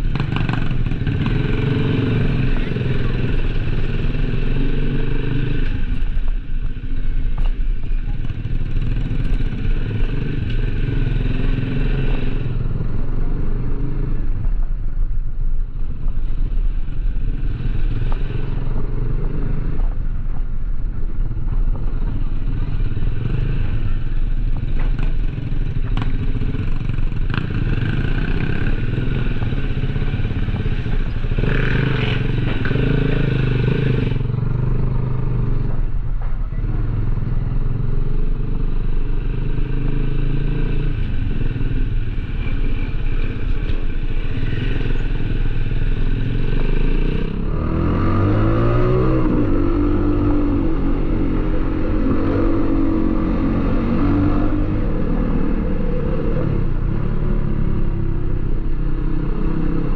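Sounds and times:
motorcycle engine running: 0.0s - 59.9s
road rumble: 0.0s - 59.9s.

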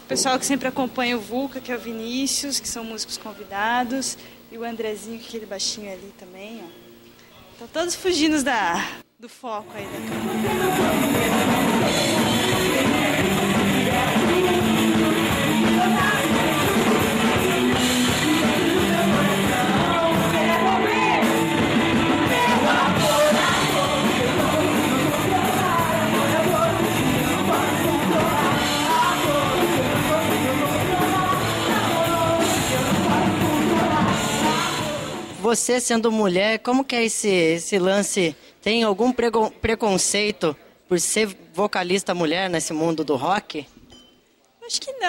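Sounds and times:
person singing: 9.8s - 35.4s
rock band playing: 9.8s - 35.4s.

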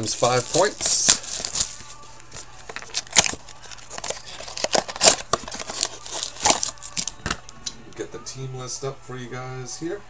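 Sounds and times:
cardboard snapping: 2.7s - 7.5s
cardboard box being torn open: 2.8s - 7.1s.

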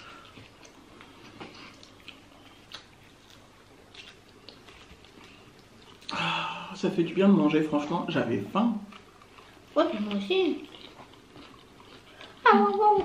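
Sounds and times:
chewing and mouth sounds: 0.0s - 6.2s, 8.8s - 13.0s.

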